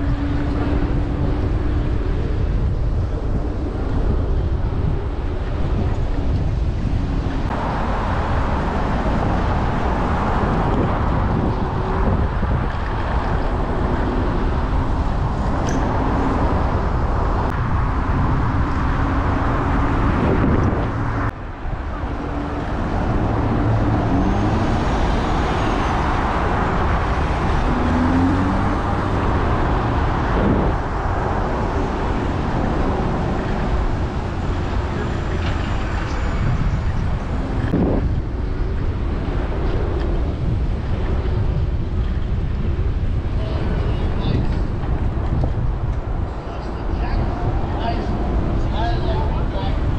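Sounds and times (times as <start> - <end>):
cars passing close by: 0.0 - 49.9
city street traffic: 0.0 - 49.9
wind buffeting microphone: 0.0 - 49.9.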